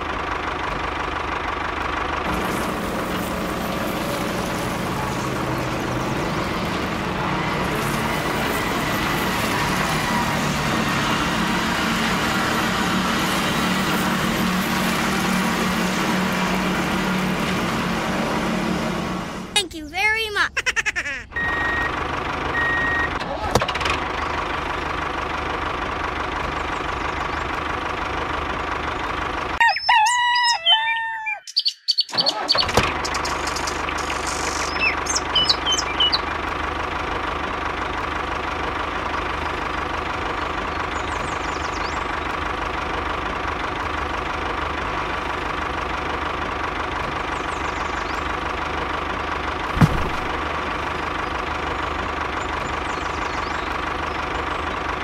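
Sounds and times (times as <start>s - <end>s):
tractor engine running: 0.0s - 29.6s, 32.3s - 55.0s
rooster crowing: 29.6s - 31.4s
sharp knock: 49.8s - 50.4s.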